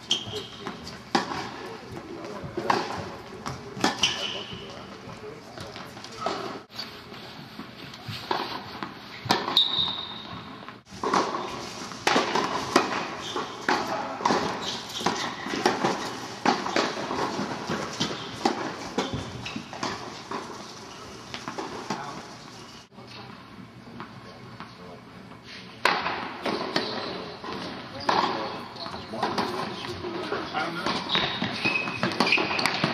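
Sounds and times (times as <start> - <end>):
racket striking tennis ball: 8.2 - 20.7, 25.8 - 28.4, 30.8 - 32.9
tennis ball bouncing: 8.3 - 9.7, 10.3 - 20.6.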